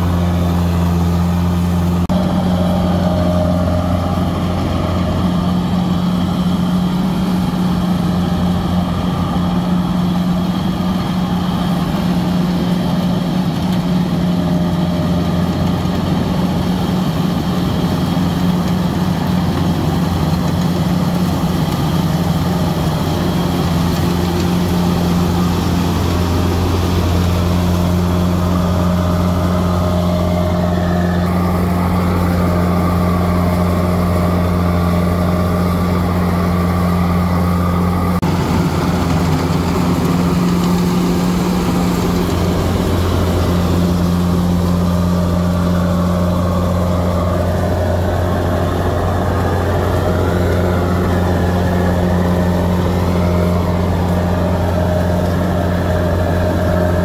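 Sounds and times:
diesel engine droning: 0.0 - 57.0.

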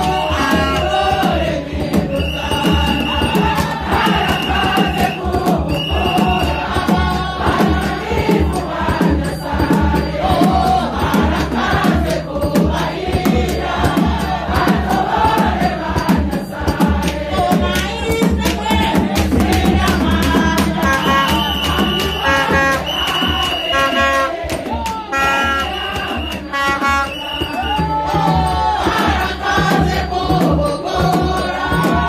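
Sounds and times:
congregation singing and chanting: 0.0 - 32.0
drum beats: 0.0 - 32.0
trumpet held notes: 20.8 - 24.5, 25.1 - 27.6.

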